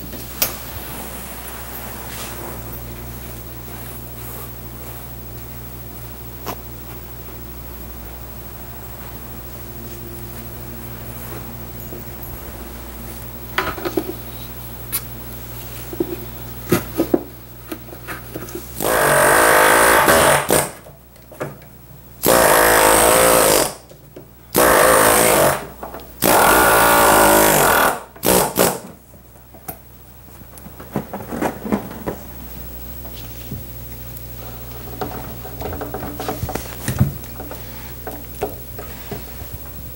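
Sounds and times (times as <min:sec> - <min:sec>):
pneumatic tack remover buzzing: 0:18.8 - 0:20.8, 0:22.2 - 0:23.9, 0:24.5 - 0:28.9.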